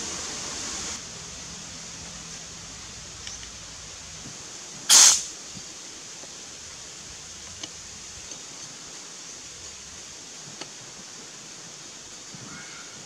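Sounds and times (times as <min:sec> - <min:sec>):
gas hissing from cylinder: 0:00.0 - 0:12.4
faint clicks: 0:10.5 - 0:10.8.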